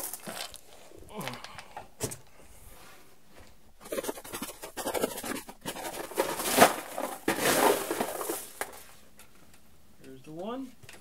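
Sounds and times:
small pellets clattering in box: 4.8 - 8.8.

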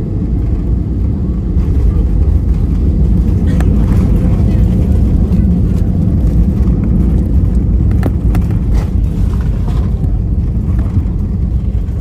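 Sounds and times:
airplane cabin low rumble: 0.0 - 12.0.

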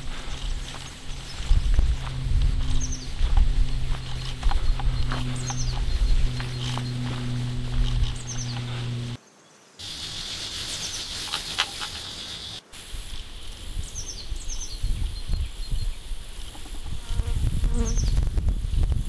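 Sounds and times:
wind rumble on microphone: 0.0 - 9.2, 13.0 - 19.0
insects buzzing and chirping: 0.0 - 18.8.

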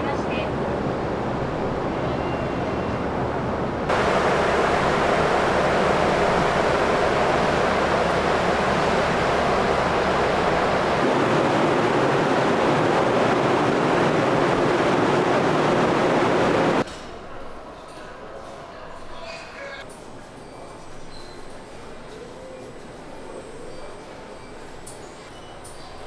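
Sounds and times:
sea noise: 0.8 - 16.8
wind rushing: 3.3 - 16.8.

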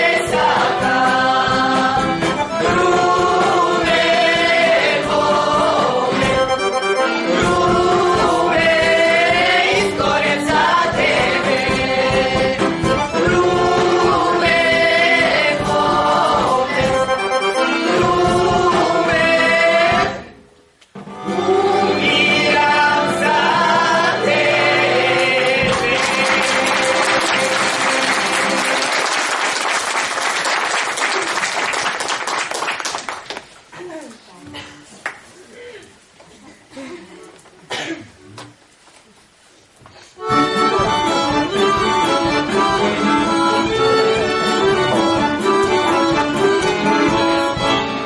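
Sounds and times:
mixed choir singing folk song: 0.0 - 20.4, 21.0 - 28.9
audience applauding: 25.6 - 33.6.

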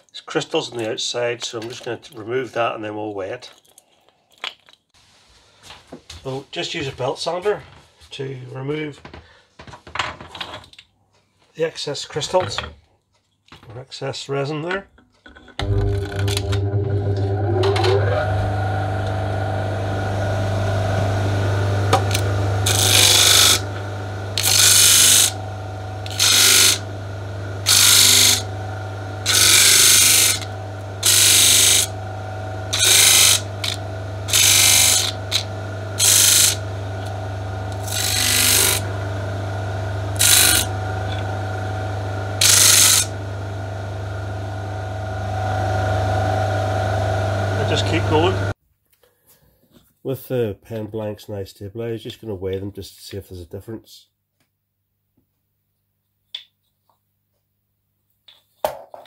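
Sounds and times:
disc sander humming: 15.6 - 48.6
wood pressed against sanding disc: 18.4 - 44.8.

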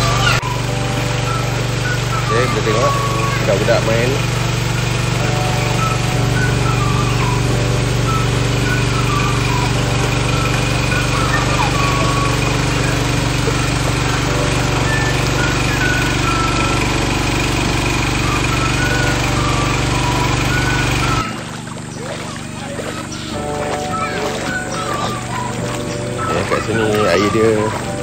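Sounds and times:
small engine running: 0.0 - 28.0
faint high wavering calls: 5.2 - 28.0.

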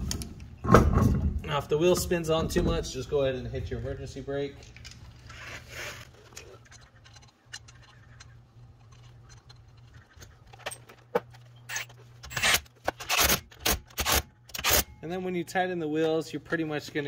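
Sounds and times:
lug nuts clinking: 6.2 - 13.0.

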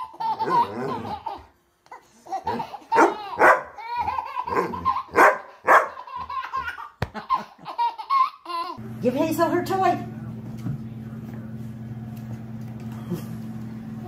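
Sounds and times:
baby laughing: 0.0 - 8.8
dog barking: 3.0 - 3.8, 4.5 - 6.0.

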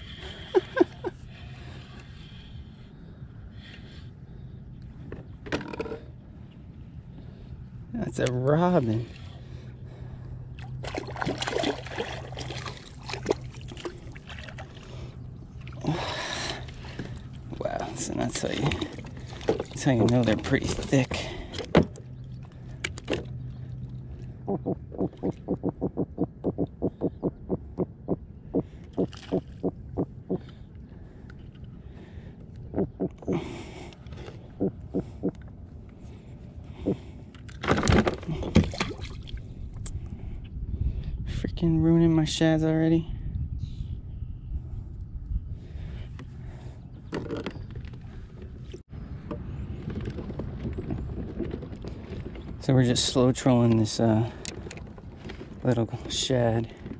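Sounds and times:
steady low rumble: 0.0 - 56.9
fish croaking grunts: 24.4 - 30.5, 32.7 - 33.6.

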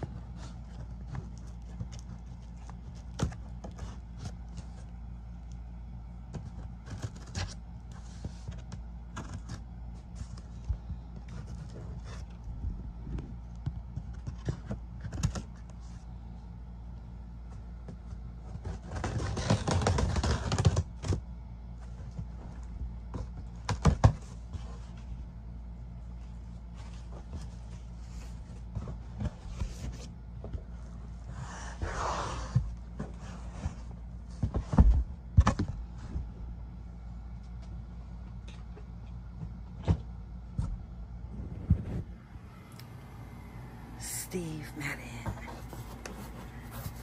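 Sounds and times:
low hum: 0.0 - 19.2, 21.1 - 47.0
cardboard rustling: 6.2 - 16.1, 17.5 - 36.3, 45.2 - 47.0
cardboard box being handled: 45.2 - 47.0.

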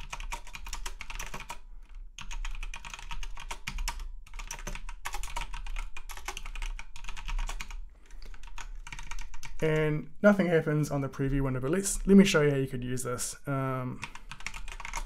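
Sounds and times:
rapid keyboard typing: 0.0 - 10.0, 14.0 - 15.0.

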